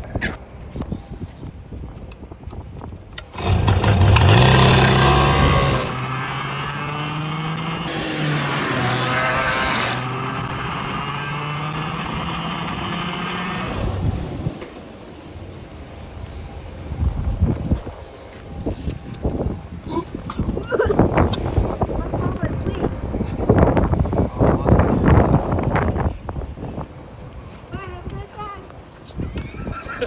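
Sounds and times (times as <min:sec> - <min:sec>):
go-kart engine revving: 0:03.4 - 0:15.5.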